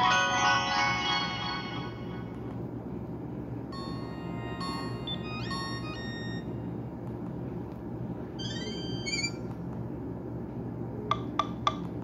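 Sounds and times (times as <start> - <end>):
phone ringtone tune: 3.8 - 6.5, 8.4 - 9.4.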